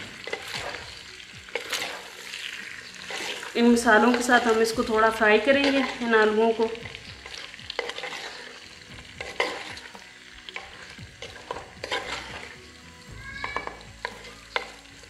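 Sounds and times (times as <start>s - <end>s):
potatoes sizzling in hot oil: 0.0s - 15.0s
spatula scraping and knocking pot: 6.8s - 12.6s.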